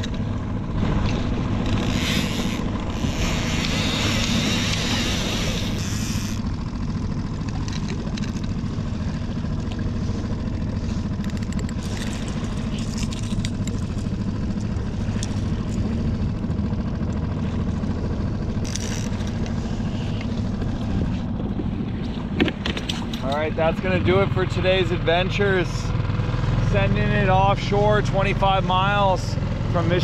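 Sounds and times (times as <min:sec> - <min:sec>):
small outboard motor running: 0:00.0 - 0:30.0
fishing reel clicking: 0:01.6 - 0:06.5, 0:18.6 - 0:19.4.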